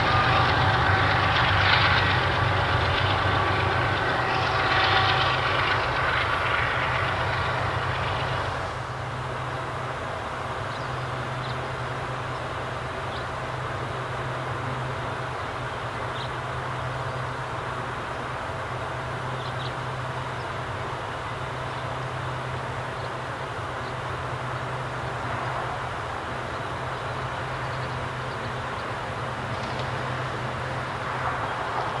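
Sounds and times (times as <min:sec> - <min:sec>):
high tones from train wheels: 0:00.0 - 0:10.4
low hum: 0:00.0 - 0:16.3
freight train rolling past: 0:00.0 - 0:32.0.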